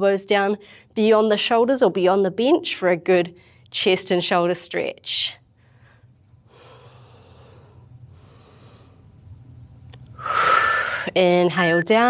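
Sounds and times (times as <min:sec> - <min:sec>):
woman breathing: 0:00.6 - 0:01.0, 0:05.5 - 0:09.3, 0:10.1 - 0:11.2.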